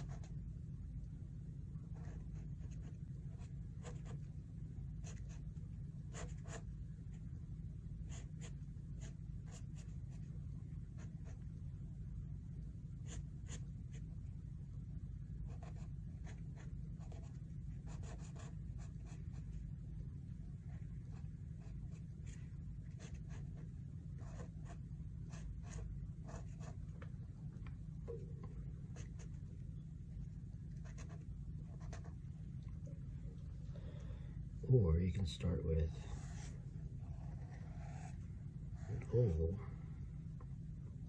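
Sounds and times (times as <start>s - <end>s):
pen scratching on paper: 0.0s - 0.4s, 2.0s - 4.3s, 5.0s - 5.5s, 6.1s - 6.7s, 8.0s - 11.5s, 13.0s - 14.0s, 15.4s - 19.6s, 21.1s - 26.8s, 28.9s - 29.4s, 30.7s - 32.2s, 36.1s - 38.2s
steady low hum: 0.0s - 41.0s.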